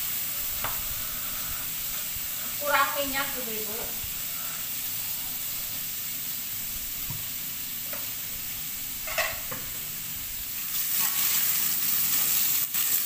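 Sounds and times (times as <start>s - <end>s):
squid sizzling in hot oil: 0.0s - 13.0s.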